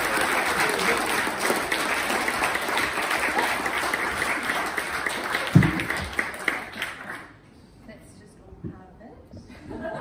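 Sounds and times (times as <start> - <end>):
people applauding: 0.0 - 7.4.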